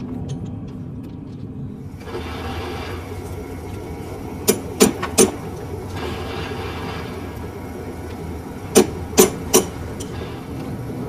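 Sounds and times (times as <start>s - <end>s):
lathe humming: 1.9s - 11.0s
hiss: 2.0s - 3.6s, 4.5s - 11.0s
sharp knocks: 4.4s - 5.4s, 8.7s - 9.8s.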